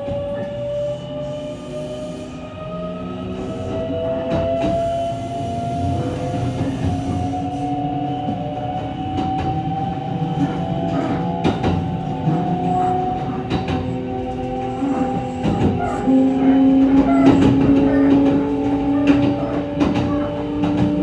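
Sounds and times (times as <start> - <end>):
train motors whining: 0.0 - 21.0
train rumble: 0.0 - 21.0
wheels clicking over rail joints: 8.8 - 21.0.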